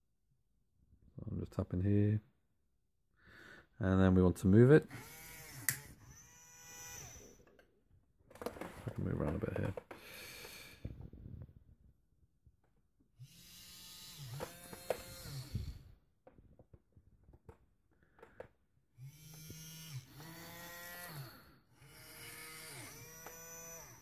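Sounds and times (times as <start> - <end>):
small motors whirring: 4.9 - 7.5, 13.2 - 16.0, 19.0 - 24.0.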